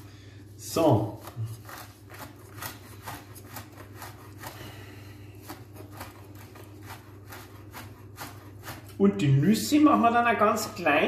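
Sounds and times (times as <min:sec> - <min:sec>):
knife chopping on wooden board: 0:01.2 - 0:04.6, 0:05.4 - 0:09.0.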